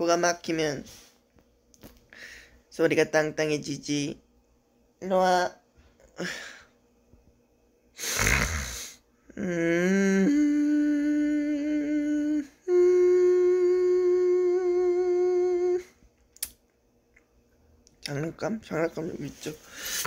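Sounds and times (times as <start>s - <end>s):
loud breath: 2.1s - 2.6s, 19.6s - 20.0s
man humming: 8.0s - 15.9s.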